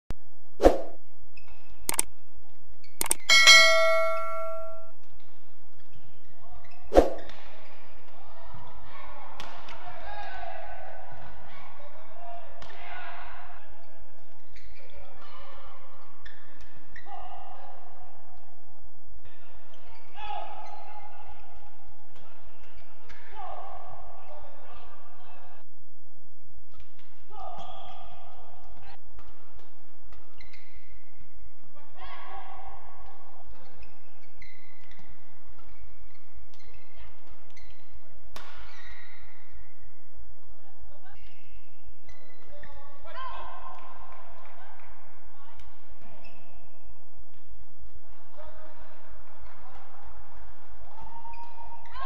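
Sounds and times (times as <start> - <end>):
shoe squeaks: 33.6 - 35.2, 41.3 - 42.8.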